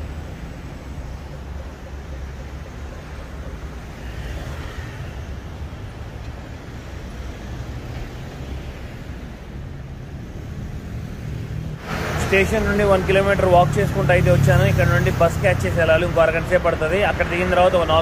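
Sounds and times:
street traffic: 0.0s - 18.0s
rain hiss: 10.3s - 18.0s.

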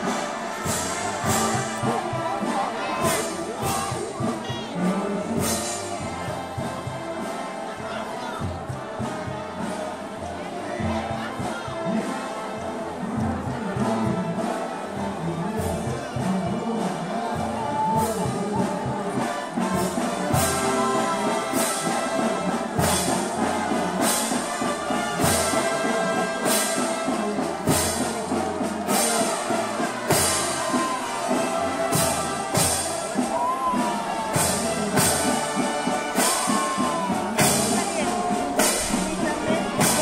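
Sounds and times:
brass band playing a march: 0.0s - 40.0s
percussion strokes: 18.3s - 40.0s.

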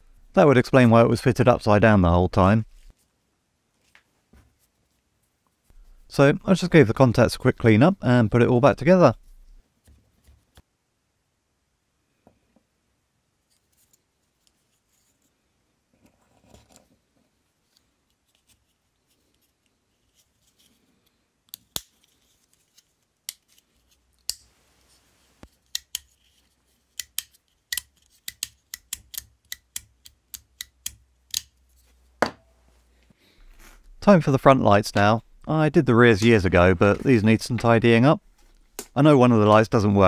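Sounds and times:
faint handling noises: 31.6s - 40.0s.

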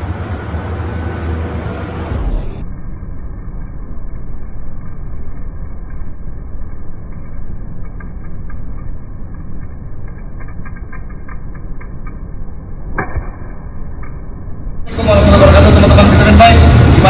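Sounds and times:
muffled low rumbling: 0.0s - 17.0s.

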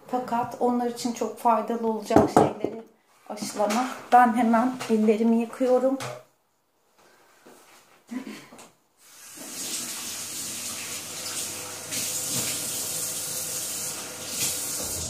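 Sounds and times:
tap water running: 9.0s - 15.0s
hands washing under water: 9.2s - 15.0s.

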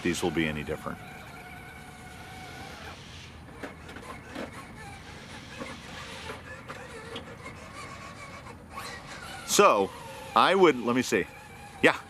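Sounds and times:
tires scrabbling on stone: 0.0s - 12.0s
toy car motor whining: 0.0s - 12.0s.

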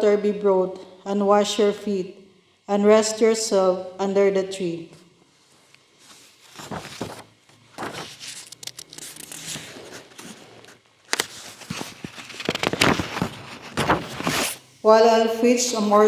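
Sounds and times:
paper rustling and crinkling: 6.0s - 14.6s.

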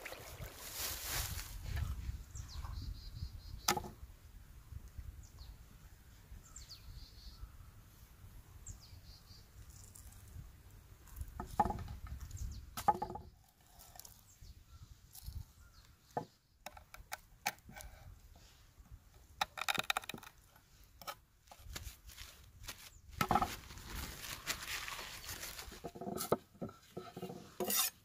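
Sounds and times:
knife knocking and scraping on cutting board: 25.9s - 27.9s.

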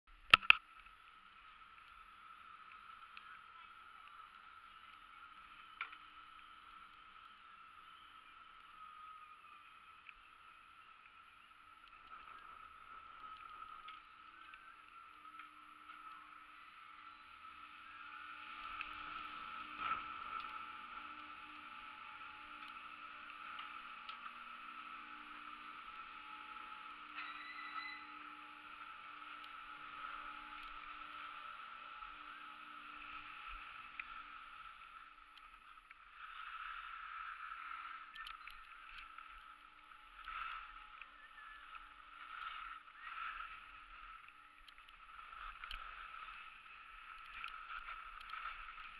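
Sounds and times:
chairlift machinery hum: 0.1s - 48.9s
faint steady whine: 0.1s - 48.9s
high mechanical squeal: 16.0s - 34.4s, 36.2s - 46.5s.

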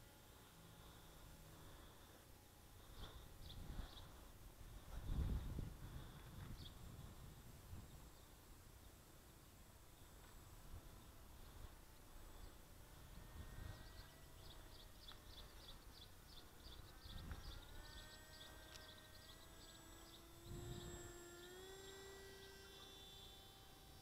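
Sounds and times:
distant model plane motor hum: 0.0s - 24.0s
faint rapid chirping: 0.0s - 24.0s
wind buffeting microphone: 4.6s - 8.1s, 16.7s - 18.4s.

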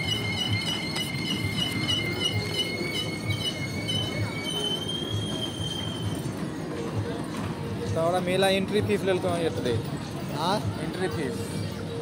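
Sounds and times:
ferris wheel metallic squealing: 0.0s - 8.0s.

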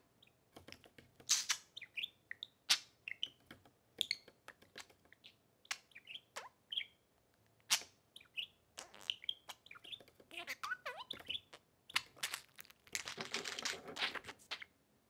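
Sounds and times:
budgerigars chirping: 5.2s - 7.0s, 7.7s - 12.4s.

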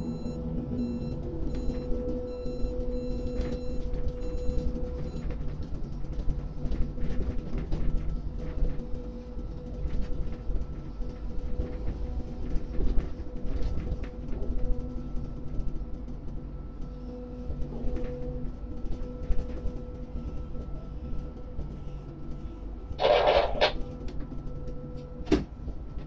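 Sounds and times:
pulsing warning beep: 0.0s - 5.3s, 23.0s - 23.8s
crane machinery hum and whine: 0.0s - 26.0s.

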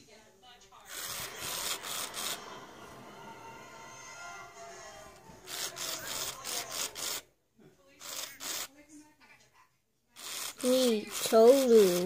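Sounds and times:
toy motor and gears grinding: 0.9s - 2.4s, 5.4s - 7.2s, 8.0s - 8.7s, 10.2s - 12.0s.

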